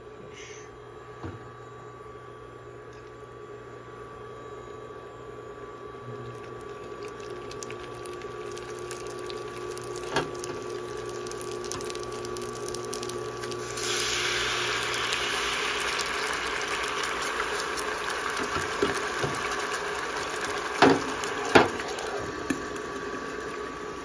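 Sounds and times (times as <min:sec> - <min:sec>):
cooktop hum: 0:00.0 - 0:24.0
oil sizzling and crackling: 0:06.2 - 0:24.0
water steaming hiss in hot pan: 0:07.2 - 0:24.0.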